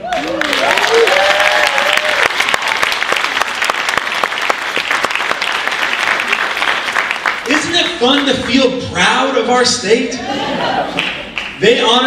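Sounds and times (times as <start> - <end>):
audience applauding: 0.0 - 8.7, 10.9 - 11.6.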